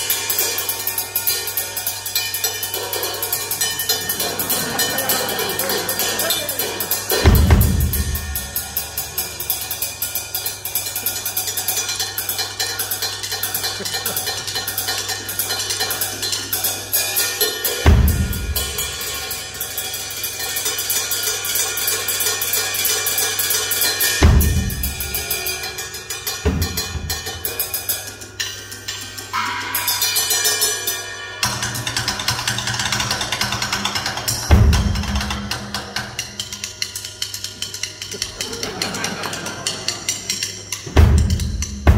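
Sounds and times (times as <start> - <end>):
drum kit solo: 0.0 - 11.4, 15.2 - 21.7, 23.6 - 41.9
heavy bass drum accents: 6.9 - 9.8, 40.8 - 41.9.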